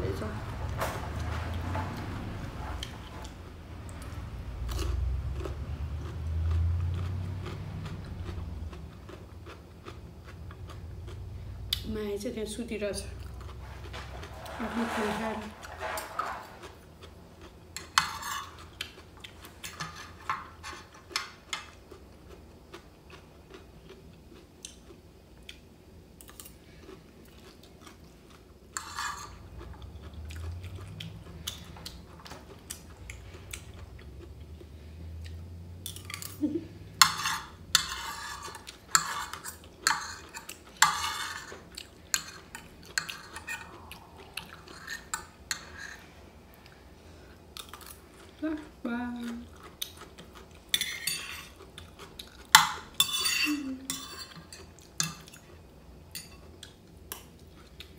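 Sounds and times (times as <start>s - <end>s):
chewing: 1.2s - 11.9s, 13.1s - 14.6s, 15.6s - 25.6s, 26.2s - 57.9s
cutlery clinking on a ceramic plate: 50.7s - 51.6s, 52.5s - 55.4s.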